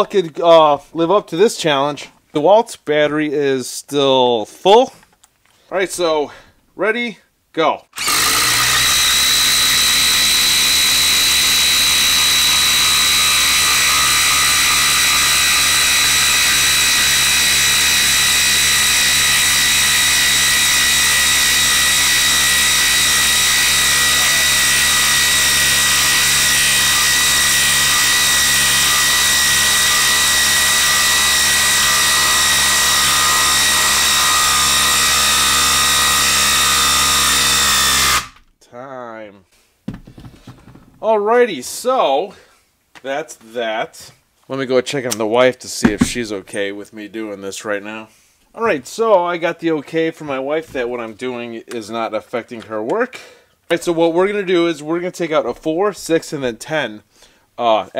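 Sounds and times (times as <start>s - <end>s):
impact driver hammering: 45.8s - 46.3s.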